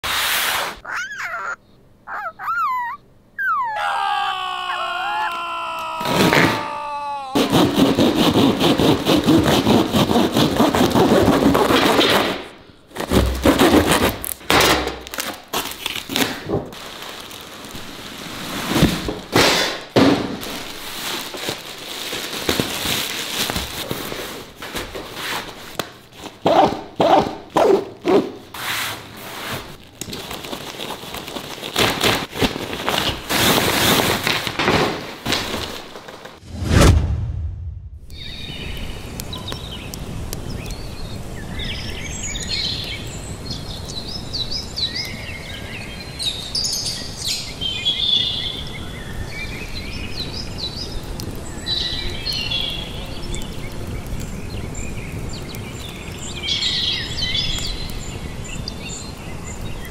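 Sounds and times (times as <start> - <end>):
hand saw cutting cardboard: 7.4 - 14.3, 26.2 - 29.7
packaging rustling and knocks: 18.7 - 26.4, 29.9 - 36.4.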